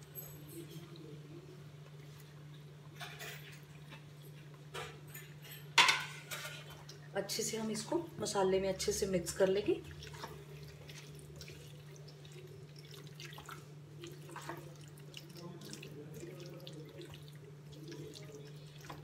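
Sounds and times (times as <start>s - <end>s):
masala frying with wet crackles: 0.0s - 19.0s.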